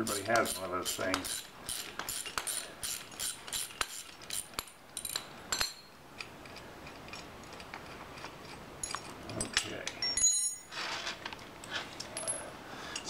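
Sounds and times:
ratchet wrench clicking: 0.1s - 5.2s
faint metal clinks: 8.8s - 10.7s, 12.0s - 13.0s.

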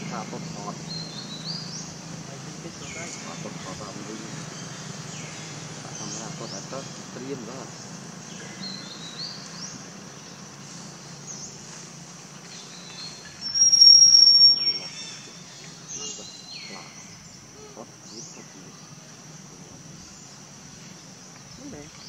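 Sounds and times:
high insect drone: 0.0s - 22.0s
short bird chirps: 13.3s - 15.1s
loud high whistling call: 13.3s - 15.2s.

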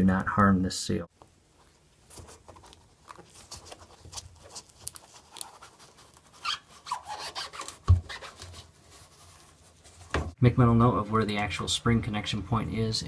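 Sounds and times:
rubbing and scraping on rubber seal: 2.1s - 10.4s.

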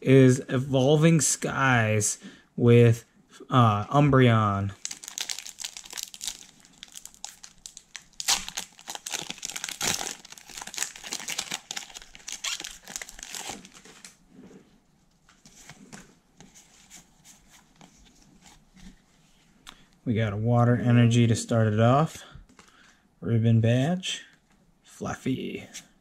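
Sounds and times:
cards rustling: 4.8s - 14.1s
foil wrapper tearing and crinkling: 4.8s - 14.2s.

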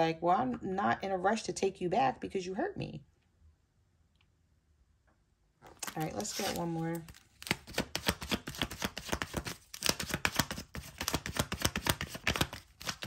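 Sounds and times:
cards being shuffled: 5.6s - 13.0s.

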